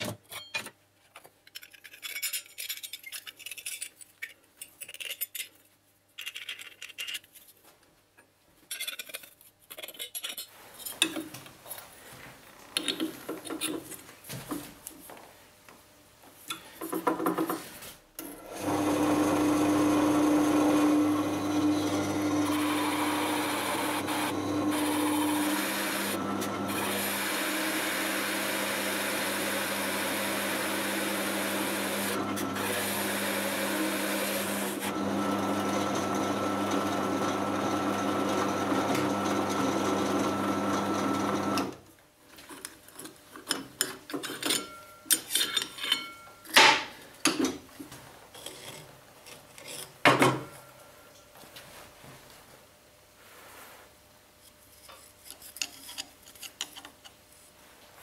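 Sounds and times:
screwdrivers scraping and clicking: 0.2 - 7.6, 8.7 - 11.3, 12.8 - 14.0, 42.3 - 46.6, 48.4 - 50.0, 54.4 - 57.2
drill press motor humming: 18.5 - 41.8
hole saw cutting wood: 18.6 - 35.6.

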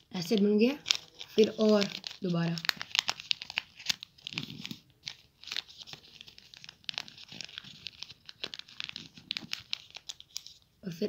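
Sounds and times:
paper being folded and creased: 0.0 - 10.7.

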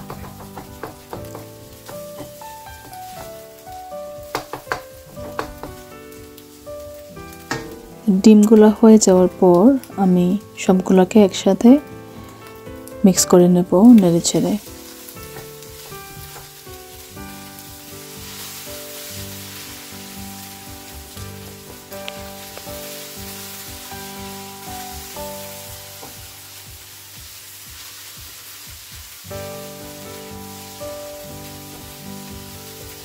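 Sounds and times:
wooden spatula stirring: 0.0 - 9.6, 13.7 - 26.4
food sizzling in a wok: 0.0 - 33.0
soft background music: 0.0 - 33.0.

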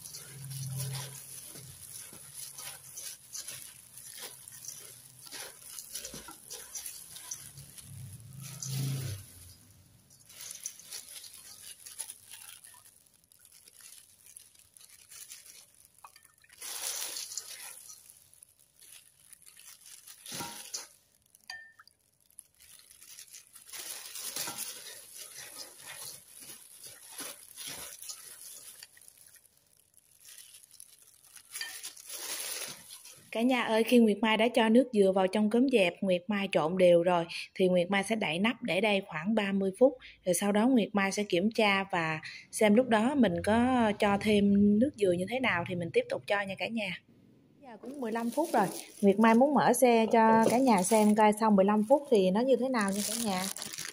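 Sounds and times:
rice flakes rustling in metal bowl: 0.0 - 34.7, 47.8 - 53.9.

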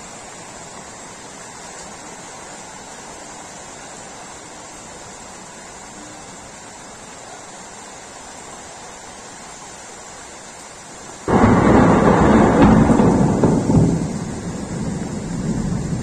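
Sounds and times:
rain hissing: 0.0 - 16.0
thunderclap: 11.3 - 16.0.

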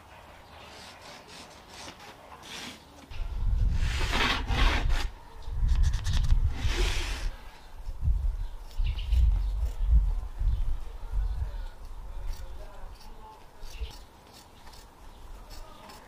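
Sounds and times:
rubbing and scraping on carpet: 0.5 - 2.9, 3.7 - 5.1, 5.7 - 7.4.

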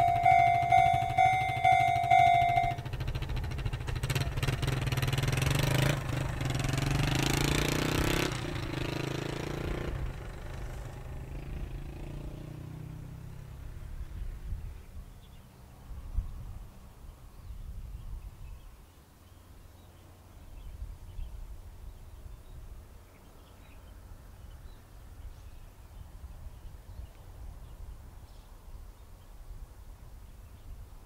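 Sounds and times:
road vehicle passing: 0.0 - 14.8.

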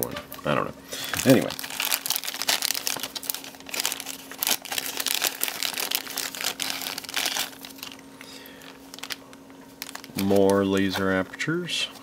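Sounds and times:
plastic bag crinkling: 1.0 - 12.0.

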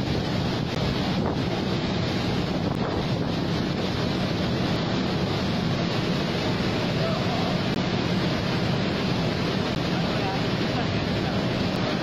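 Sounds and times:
water rushing down dam spillway: 0.0 - 12.0.

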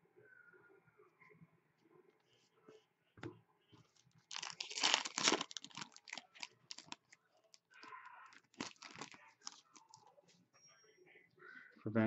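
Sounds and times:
foil pack tearing and crinkling: 4.3 - 7.1, 7.8 - 9.6.

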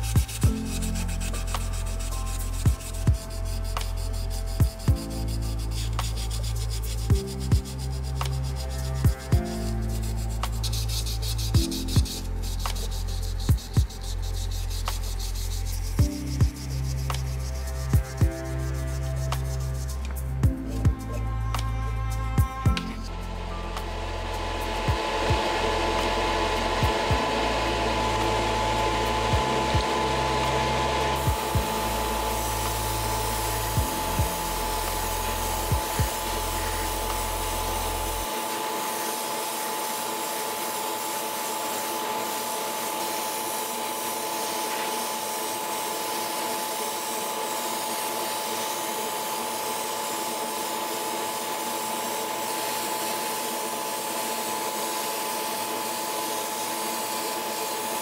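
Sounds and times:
deep bass music: 0.0 - 38.3
airbrush spraying hiss: 0.0 - 58.0
extractor fan whining: 0.0 - 58.0.

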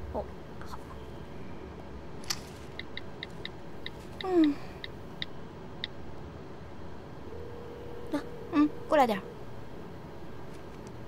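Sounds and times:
woman humming: 4.2 - 4.8, 7.4 - 9.3.

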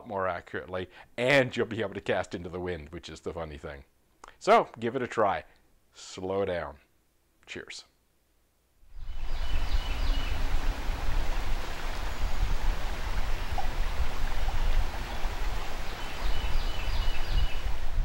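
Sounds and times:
river water flowing: 9.0 - 18.0
wind buffeting microphone: 9.0 - 18.0.

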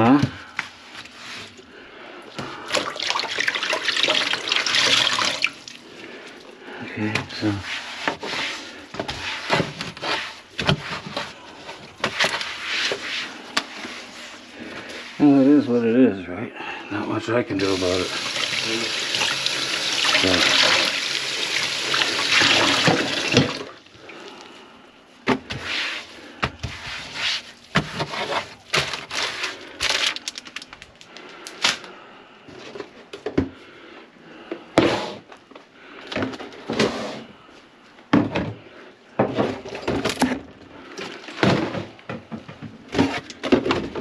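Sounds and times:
running tap water: 2.7 - 5.8, 17.6 - 23.8
hard objects knocking and rattling: 39.2 - 44.0.

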